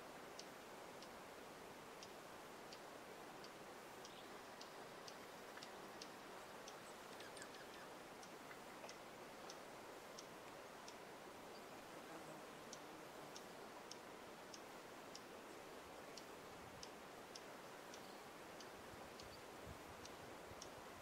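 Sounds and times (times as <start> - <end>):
steady hiss: 0.0 - 21.0
songbird chip calls: 4.0 - 9.0.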